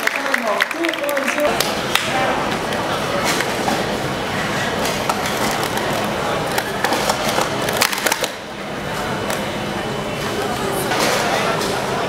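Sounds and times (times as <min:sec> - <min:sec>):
plastic cups clattering: 0:04.6 - 0:08.4.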